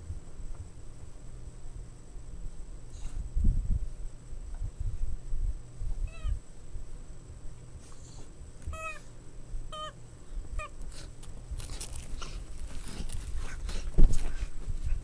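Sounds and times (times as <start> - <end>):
puppies scratching at fabric: 10.8 - 15.0.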